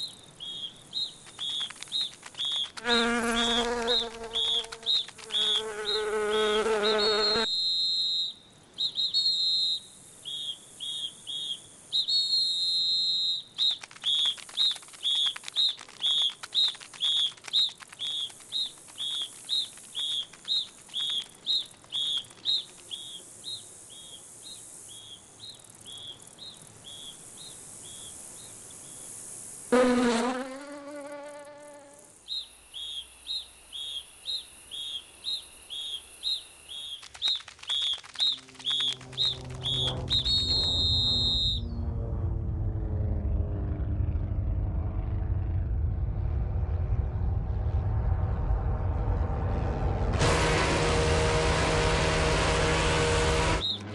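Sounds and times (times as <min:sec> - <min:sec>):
cartoon insect chirps: 0:00.0 - 0:29.1, 0:29.7 - 0:41.8
lower wavering call: 0:37.3 - 0:42.4.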